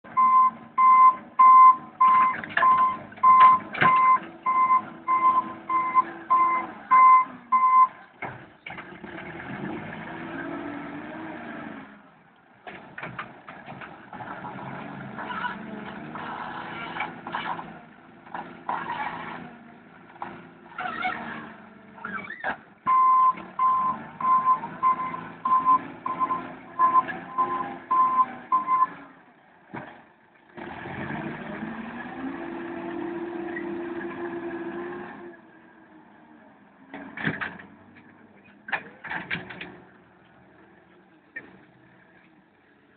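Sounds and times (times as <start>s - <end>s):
diesel engine revving under load: 0.0s - 42.9s
reverse alarm beeping: 0.2s - 7.9s, 22.9s - 28.9s.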